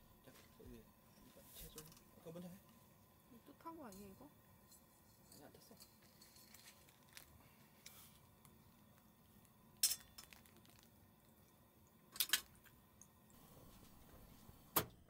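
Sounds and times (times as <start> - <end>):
knife clinking on metal plate: 9.8 - 10.3.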